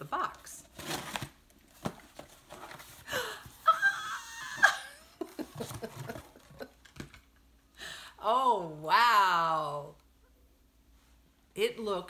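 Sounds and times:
cardboard box opening: 0:00.7 - 0:03.0.

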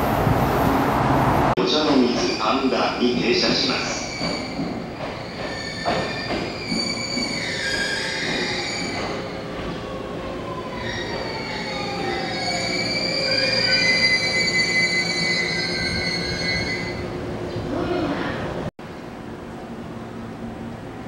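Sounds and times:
train running noise: 0:00.0 - 0:10.5
train brake squeal: 0:03.8 - 0:09.4, 0:10.8 - 0:17.0.

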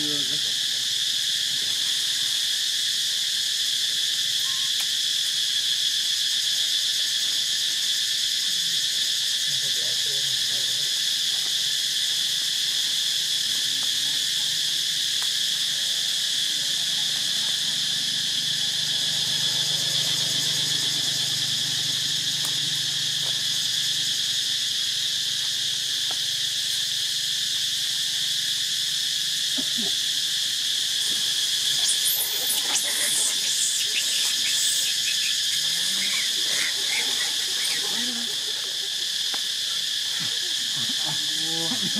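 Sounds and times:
insects droning chorus: 0:00.0 - 0:41.9
high chirps: 0:31.7 - 0:38.2.

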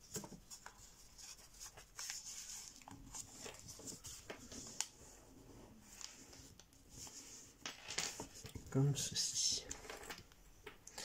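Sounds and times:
paper rustling and crinkling: 0:00.0 - 0:08.8.

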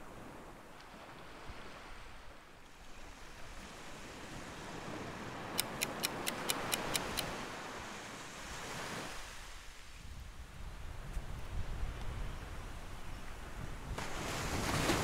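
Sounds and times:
surf breaking on beach: 0:13.9 - 0:15.0.

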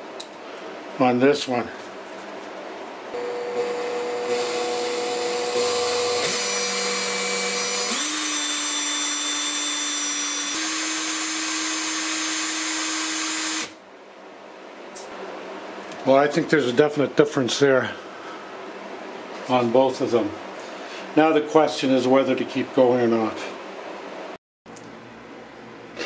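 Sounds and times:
cordless drill whining: 0:03.2 - 0:13.8.

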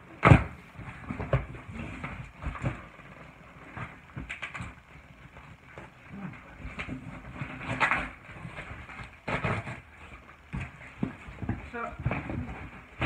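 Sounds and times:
cardboard knocks and scrapes: 0:00.2 - 0:04.8.

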